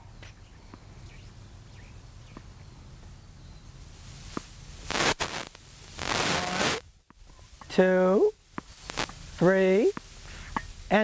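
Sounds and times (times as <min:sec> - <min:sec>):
low outdoor background: 0:00.0 - 0:11.0.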